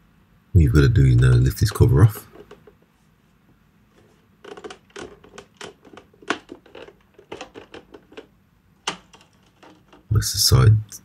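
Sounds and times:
clicks taps and scrapes on plastic: 0:02.2 - 0:02.9, 0:04.0 - 0:10.1.

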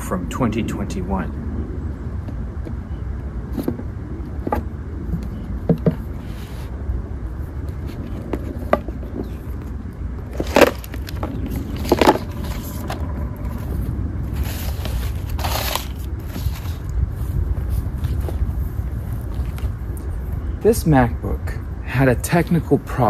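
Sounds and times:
steady low rumble: 0:00.0 - 0:23.0
sliding scrape: 0:06.1 - 0:06.8, 0:14.3 - 0:16.9.

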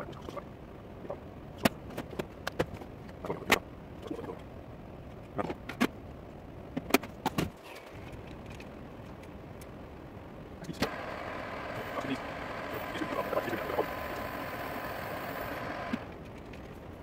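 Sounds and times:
metal lathe humming: 0:10.8 - 0:16.2.

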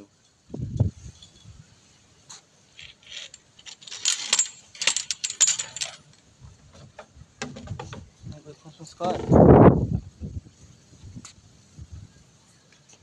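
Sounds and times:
metal tongs clinking on tiled floor: 0:02.8 - 0:06.0.

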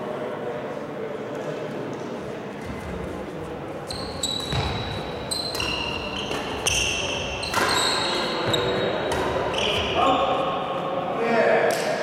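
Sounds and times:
shoes squeaking on court floor: 0:02.6 - 0:10.1
racket striking shuttlecock: 0:05.5 - 0:09.5.

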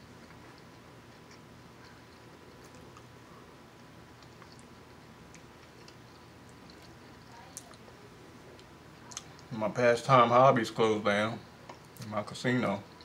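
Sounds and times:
person chewing: 0:00.0 - 0:07.9.

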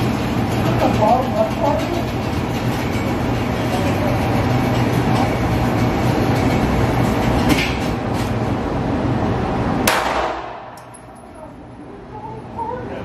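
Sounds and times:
sharp cracks: 0:09.9 - 0:11.0.

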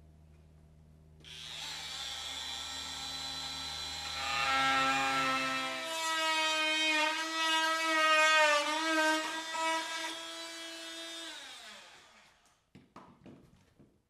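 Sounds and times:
power cutting tool whining: 0:01.3 - 0:12.4.

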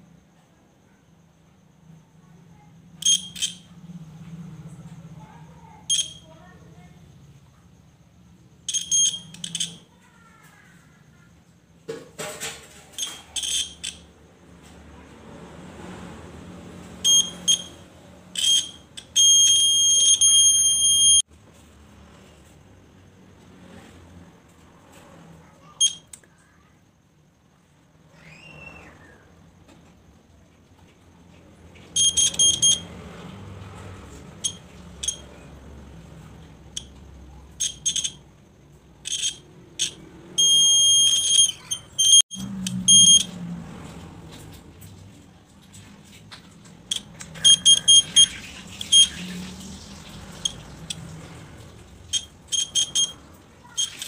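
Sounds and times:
shrill buzzer beeps: 0:03.0 - 0:03.7, 0:05.9 - 0:06.3, 0:08.6 - 0:09.9, 0:12.9 - 0:14.1, 0:17.0 - 0:17.8, 0:18.4 - 0:21.2, 0:25.7 - 0:26.2, 0:32.0 - 0:32.9, 0:34.4 - 0:35.3, 0:36.7 - 0:38.3, 0:39.0 - 0:43.4, 0:46.9 - 0:49.2, 0:52.1 - 0:54.0.

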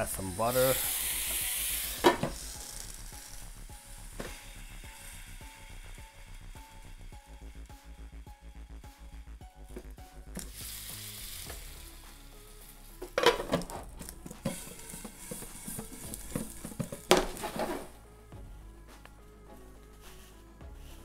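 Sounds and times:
vegetables sizzling in frying pan: 0:00.0 - 0:07.1, 0:10.4 - 0:17.9
spoon stirring and scraping: 0:14.1 - 0:17.8.

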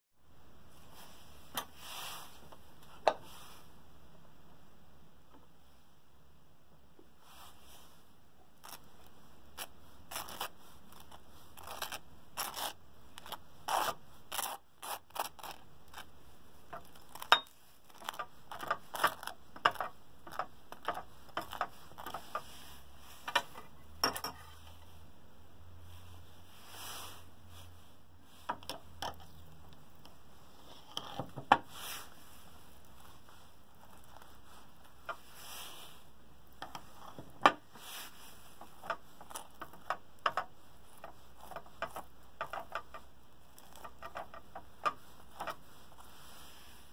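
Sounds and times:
knife scraping toast: 0:09.6 - 0:16.1, 0:16.8 - 0:22.5, 0:38.6 - 0:45.6.

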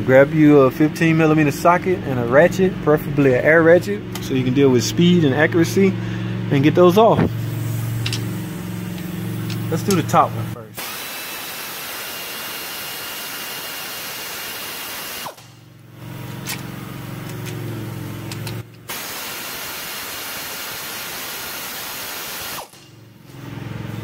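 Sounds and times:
air ratchet whirring: 0:07.2 - 0:10.2, 0:10.8 - 0:15.6, 0:18.2 - 0:23.0.

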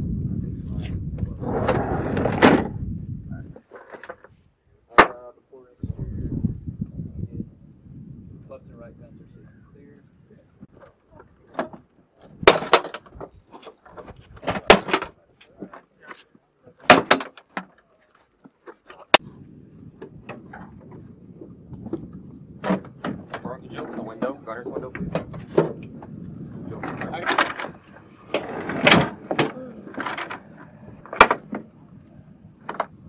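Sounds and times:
wind buffeting microphone: 0:00.0 - 0:03.6, 0:05.7 - 0:11.4, 0:12.2 - 0:15.3, 0:19.1 - 0:33.0.

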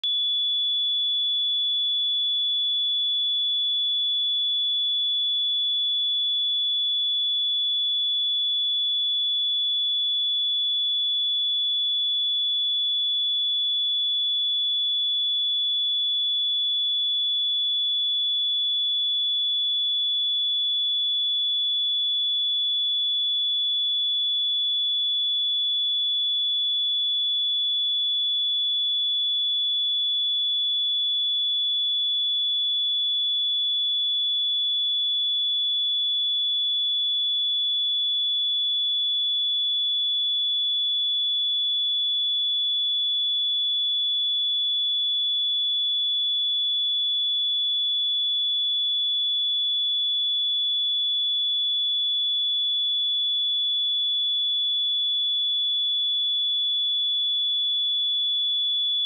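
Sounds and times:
high-pitched sine-wave test tone: 0:00.0 - 0:02.9.

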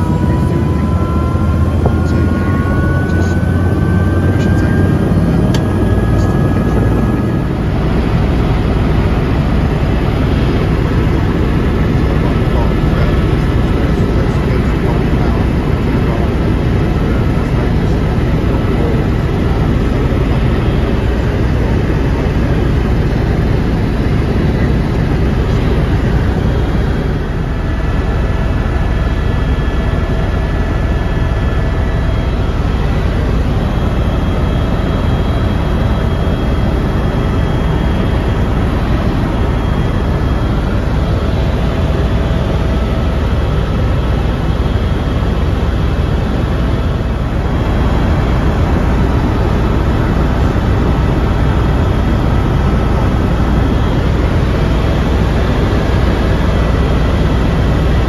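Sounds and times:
helicopter rotor and engine rumble: 0:00.0 - 0:58.0.

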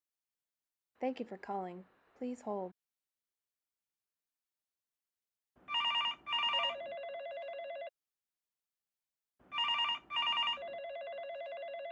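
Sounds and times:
telephone ringing: 0:05.7 - 0:07.9, 0:09.5 - 0:11.9.

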